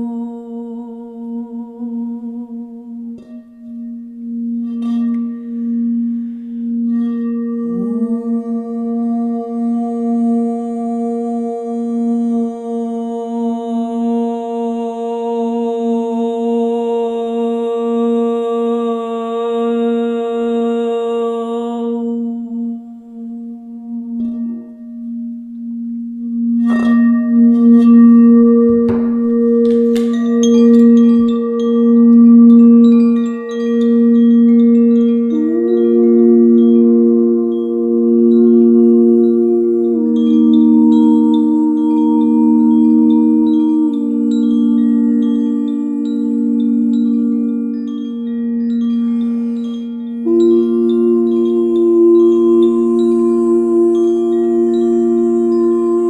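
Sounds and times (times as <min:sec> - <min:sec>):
woman singing: 0:00.0 - 0:03.8, 0:07.0 - 0:24.7, 0:26.6 - 0:56.0
crystal singing bowl ringing: 0:00.0 - 0:18.8, 0:19.6 - 0:56.0
chime pings: 0:26.7 - 0:35.9
wand knocking bowl: 0:28.6 - 0:32.2.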